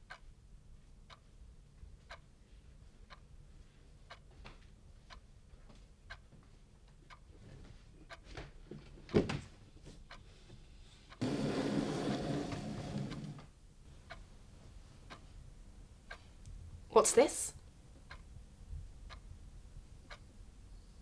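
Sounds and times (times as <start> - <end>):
clock ticking: 0.0 - 0.3, 1.0 - 2.3, 3.0 - 3.4, 4.1 - 4.4, 6.0 - 7.3, 8.0 - 8.3, 11.1 - 13.5, 14.1 - 14.3, 15.1 - 15.3, 16.0 - 16.3, 18.0 - 18.3, 20.0 - 20.3
box sliding on wooden tabletop: 11.2 - 13.5.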